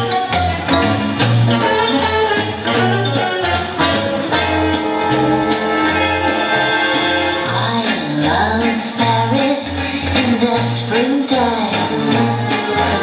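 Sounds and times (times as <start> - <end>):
line dance music: 0.0 - 13.0
person singing: 7.4 - 13.0.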